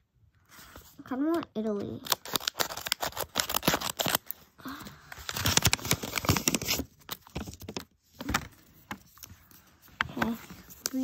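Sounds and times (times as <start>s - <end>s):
paper crinkling and rustling: 0.5s - 11.0s
scissors snipping paper: 2.0s - 4.3s.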